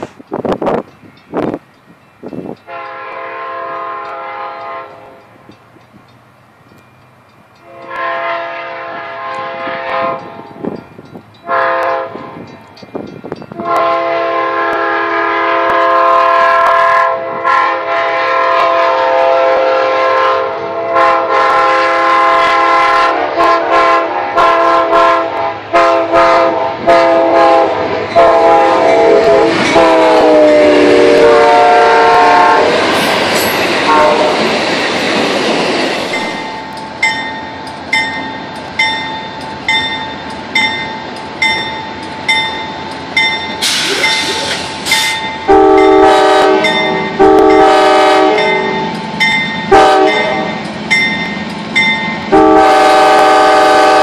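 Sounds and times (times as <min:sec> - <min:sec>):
locomotive air horn blasts: 0:02.7 - 0:05.3, 0:07.6 - 0:10.5, 0:11.4 - 0:12.4, 0:13.5 - 0:32.8, 0:33.9 - 0:34.4, 0:45.4 - 0:48.9, 0:49.7 - 0:50.6, 0:52.3 - 0:54.0
train wheels clattering over rails: 0:25.8 - 0:52.4.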